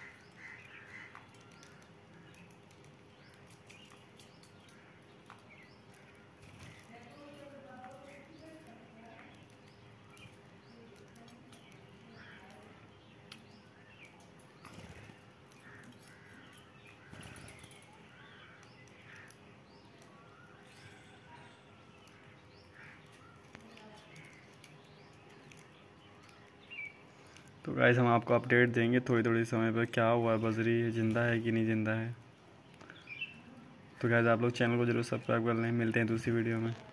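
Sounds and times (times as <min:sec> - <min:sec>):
budgerigars chirping: 0:00.0 - 0:02.5.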